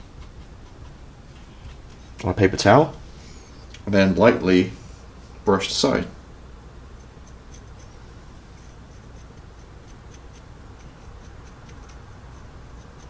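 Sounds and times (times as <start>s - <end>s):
paintbrush scratching strokes: 0.0s - 2.2s, 6.9s - 13.0s
low hum: 0.0s - 13.0s.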